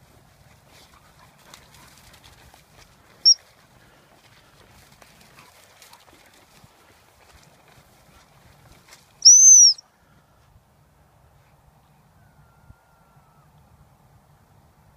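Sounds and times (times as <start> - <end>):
rustling footsteps through grass: 0.0 - 9.2
high-pitched whistle pip: 9.2 - 9.8.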